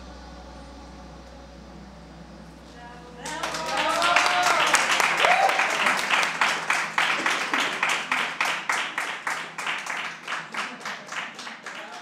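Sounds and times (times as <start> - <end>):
audience clapping in unison: 3.2 - 12.0.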